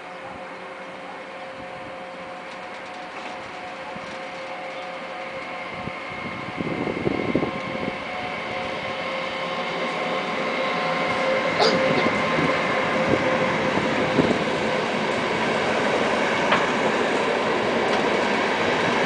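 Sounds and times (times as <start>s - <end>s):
electric locomotive whine: 0.0s - 19.0s
locomotive rough rumbling: 0.0s - 19.0s.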